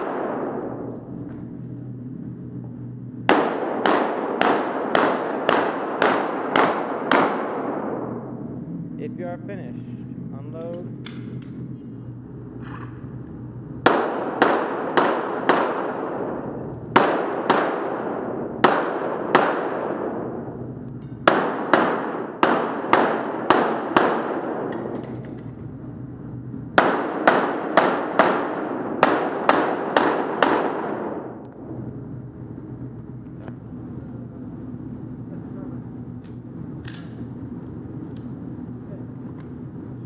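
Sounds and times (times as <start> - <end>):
pistol shots reverberating: 0.0 - 1.1, 3.2 - 8.4, 13.8 - 25.5, 26.8 - 31.4.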